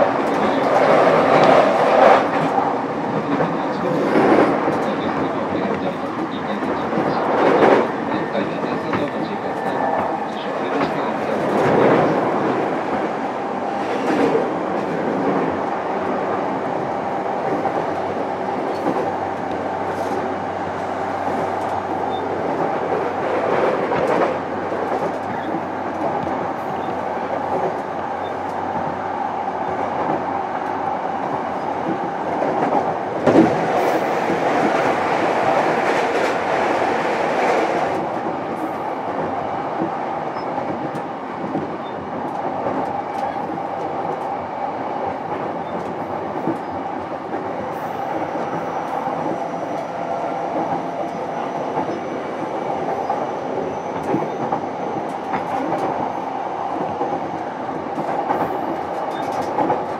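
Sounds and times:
train wheels rumbling on rail: 0.0 - 59.9
clacks over rail joints: 53.9 - 59.9.

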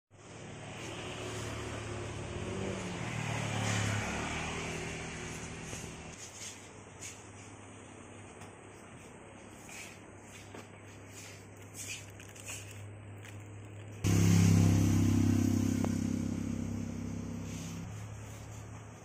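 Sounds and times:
vehicle engine running: 13.3 - 19.0.

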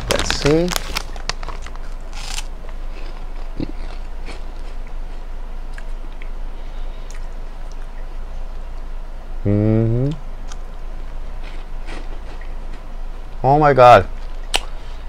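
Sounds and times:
cheese curl crunch: 0.0 - 6.3
faint chewing crackles: 0.0 - 6.4, 7.0 - 8.9.

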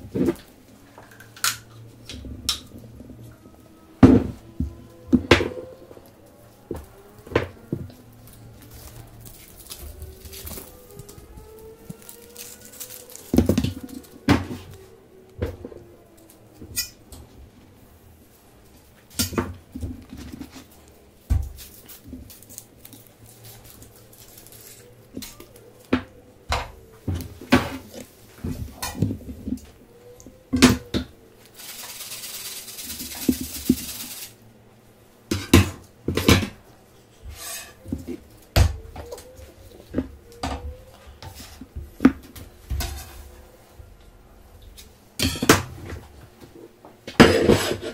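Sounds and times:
steady hiss: 31.4 - 35.3.

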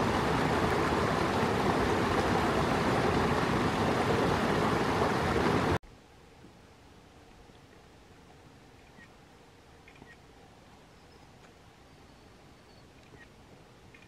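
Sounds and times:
loud steady rushing noise: 0.0 - 5.8
faint outdoor hiss: 0.0 - 14.0.

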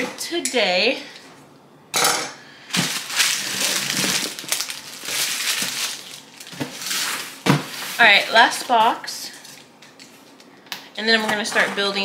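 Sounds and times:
cardboard boxes rustling: 2.7 - 8.9.

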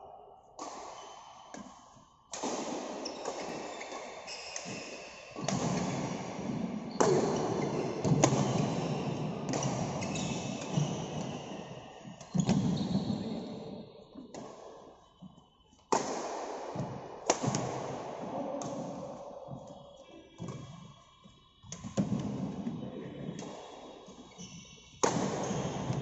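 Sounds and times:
racket hitting shuttlecock: 0.6 - 3.7, 5.4 - 11.3, 15.9 - 19.1, 25.0 - 26.0
shoes squeaking on wooden court: 3.0 - 15.8, 18.3 - 26.0.

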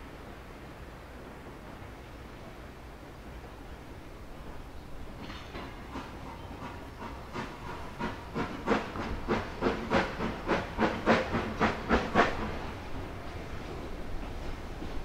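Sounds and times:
steam hissing: 3.4 - 15.0
steam locomotive exhaust chuffs: 4.3 - 15.0.

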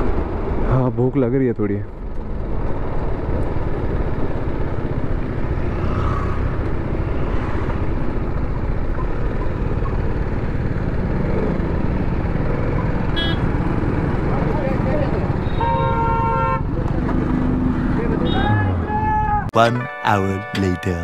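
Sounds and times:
wind and road noise: 0.0 - 19.5
motorcycle engine running: 2.2 - 16.0.

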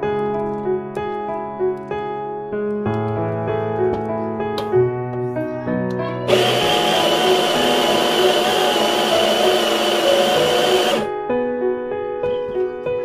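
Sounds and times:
soft piano music: 0.0 - 6.3, 7.6 - 13.0
coffee grinder whining: 6.3 - 11.1.

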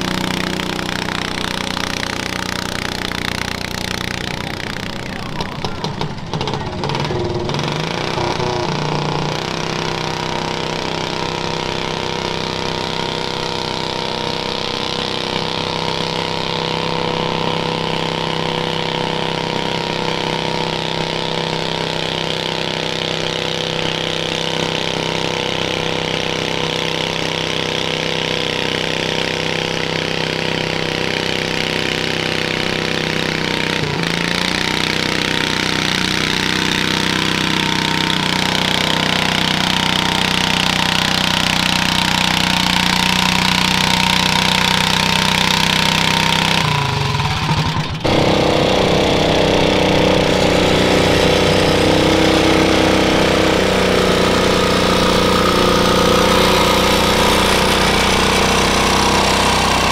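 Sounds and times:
tires spinning in dirt: 0.0 - 59.9
tractor engine under load: 0.0 - 59.9.

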